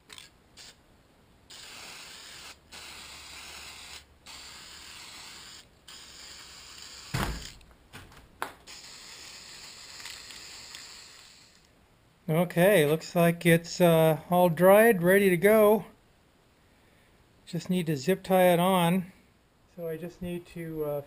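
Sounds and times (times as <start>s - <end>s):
spray paint can hissing: 0.1s - 0.8s, 1.5s - 7.6s, 8.6s - 11.7s
thump: 7.1s - 8.2s.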